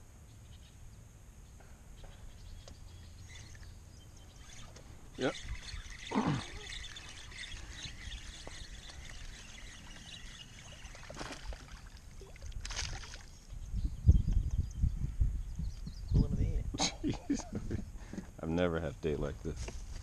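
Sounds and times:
fish splashing in water: 0:05.3 - 0:13.4.

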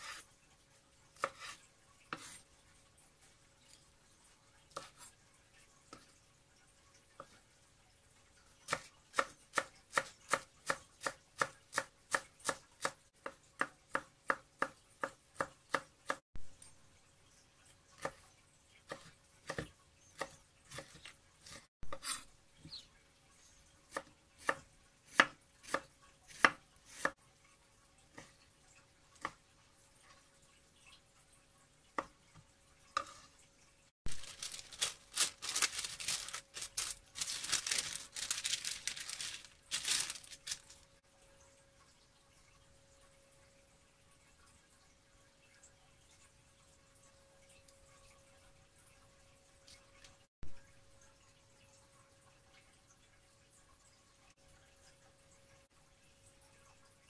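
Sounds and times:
parchment paper crinkling: 0:34.1 - 0:40.9.

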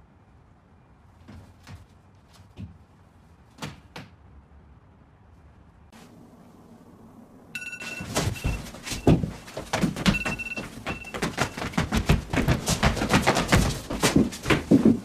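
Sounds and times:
short high electronic beep: 0:07.6 - 0:09.2.

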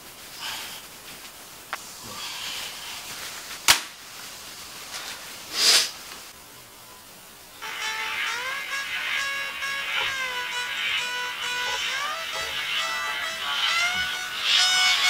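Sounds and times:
clothes rustling: 0:00.0 - 0:06.4.

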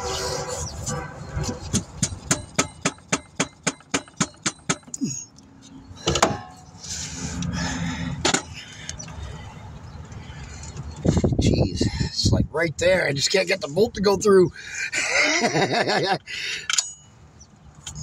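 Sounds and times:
metal scraping: 0:00.0 - 0:03.3
loud metal knocks: 0:01.7 - 0:04.9.

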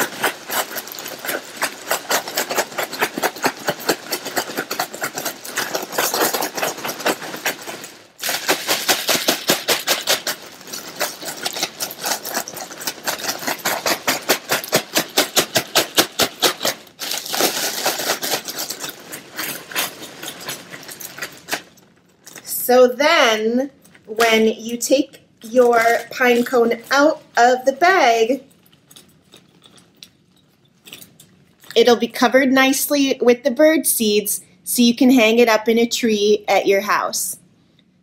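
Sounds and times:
birdseed rattling: 0:00.0 - 0:21.9
plastic bag crinkling: 0:00.0 - 0:22.6, 0:23.8 - 0:31.8.

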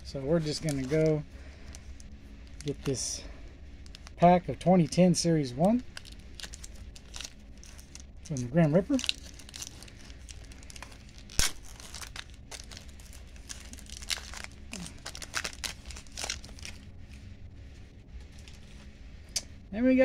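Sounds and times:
foil wrapper crinkling and tearing: 0:00.3 - 0:16.9.

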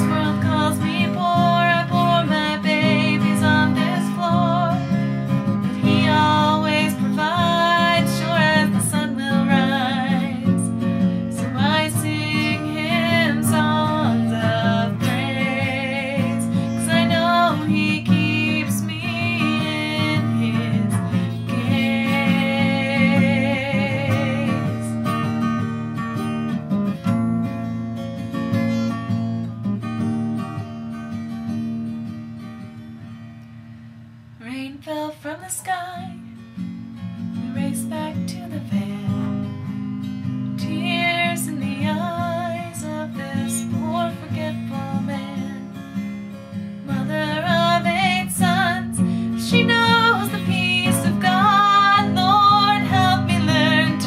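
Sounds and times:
woman singing: 0:00.0 - 0:25.1, 0:34.4 - 0:36.4, 0:37.4 - 0:39.8, 0:40.6 - 0:45.9, 0:46.8 - 0:54.0
strummed acoustic guitar: 0:00.0 - 0:54.0.

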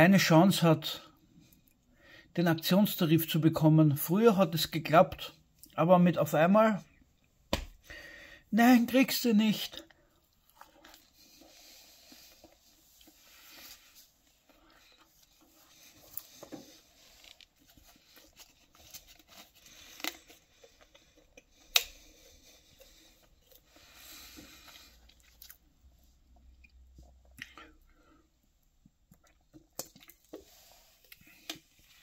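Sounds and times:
chewing: 0:09.8 - 0:13.7, 0:14.3 - 0:27.8.

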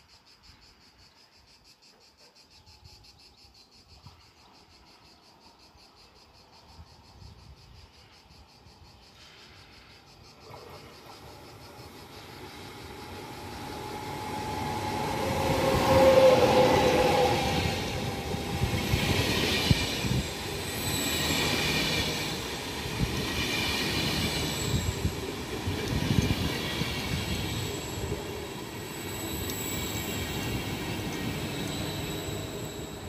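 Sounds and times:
electric train running past: 0:04.0 - 0:33.0
high-pitched squeal: 0:12.3 - 0:33.0.

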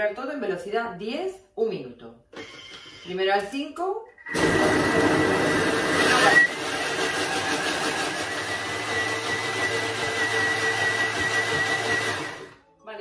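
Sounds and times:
food processor blades whirring: 0:04.2 - 0:12.6.

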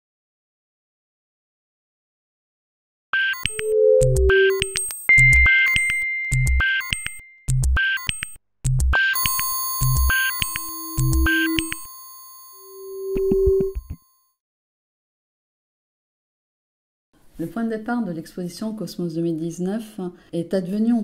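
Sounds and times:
synthesized bleeps and chirps: 0:03.2 - 0:08.3, 0:09.0 - 0:11.8, 0:12.9 - 0:14.0.

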